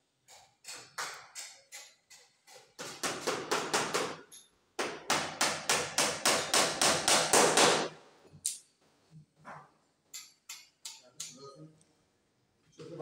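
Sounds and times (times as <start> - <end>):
hammer driving nails into wood: 0.3 - 8.0.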